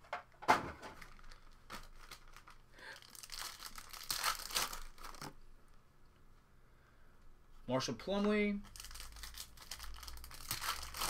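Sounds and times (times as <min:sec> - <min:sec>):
wrapper crinkling and tearing: 0:01.0 - 0:05.4, 0:08.6 - 0:11.0.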